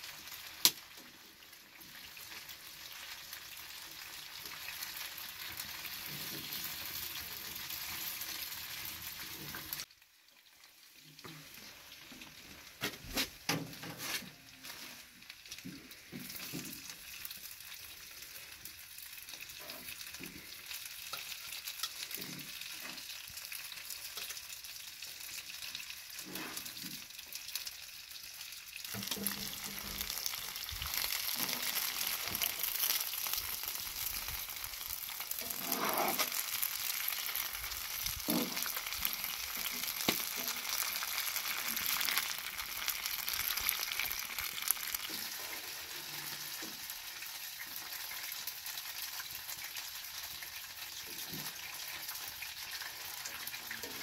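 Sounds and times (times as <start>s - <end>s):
vegetables sizzling in hot oil: 0.0s - 54.0s
metal spatula scraping pan: 35.4s - 36.4s.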